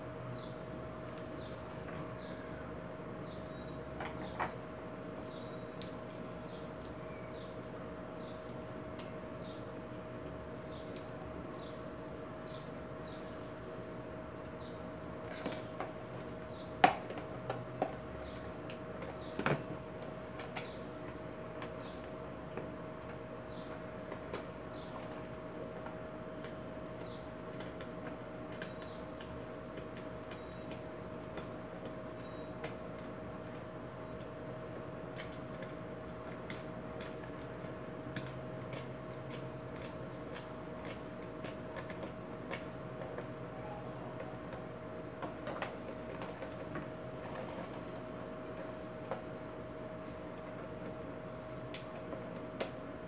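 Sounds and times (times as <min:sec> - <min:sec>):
faint steady hum: 0:00.0 - 0:53.0
plastic fan parts clicking and knocking: 0:15.3 - 0:43.5, 0:44.1 - 0:49.4.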